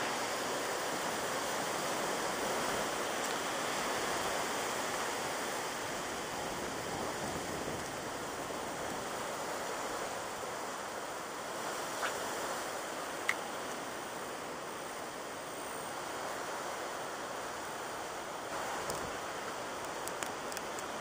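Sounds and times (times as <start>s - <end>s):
wind roaring through trees: 0.0s - 21.0s.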